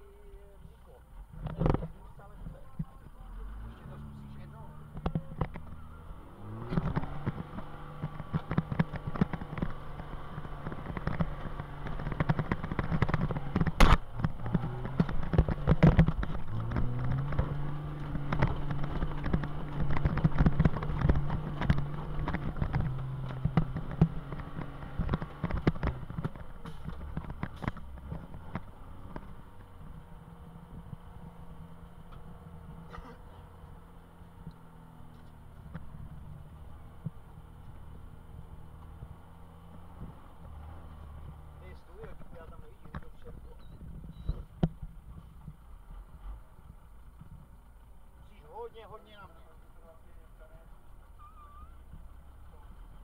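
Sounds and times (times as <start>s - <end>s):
diesel truck engine under load: 0.0s - 53.0s
cab rattles and knocks: 4.8s - 30.0s.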